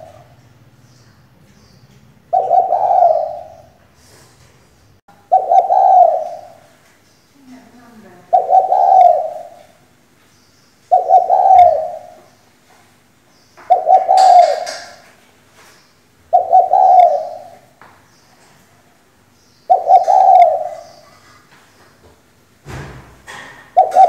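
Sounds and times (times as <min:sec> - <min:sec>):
dove cooing: 0:00.0 - 0:00.4, 0:02.3 - 0:03.8, 0:05.2 - 0:06.8, 0:08.3 - 0:09.8, 0:10.9 - 0:12.4, 0:13.6 - 0:15.0, 0:16.3 - 0:17.8, 0:19.7 - 0:21.5, 0:23.3 - 0:24.0.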